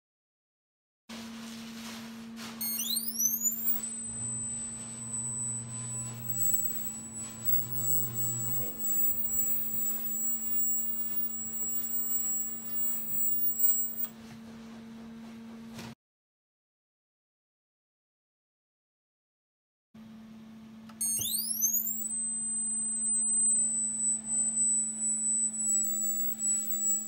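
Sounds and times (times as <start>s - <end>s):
induction heater whine: 1.8s - 15.4s, 20.0s - 27.0s
steady low hum: 2.6s - 14.1s, 21.2s - 27.0s.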